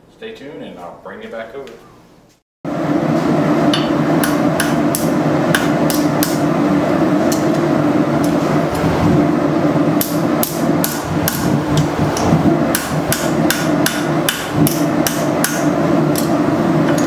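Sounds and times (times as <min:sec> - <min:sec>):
steady low roar: 0:02.7 - 0:17.0
hammer striking metal on anvil: 0:03.7 - 0:06.4, 0:12.2 - 0:16.3.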